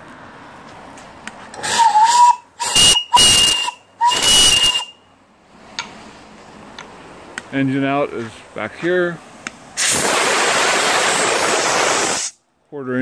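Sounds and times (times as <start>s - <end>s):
steam hissing: 1.6s - 4.9s, 9.8s - 12.4s
steam whistle blasts: 1.6s - 5.0s.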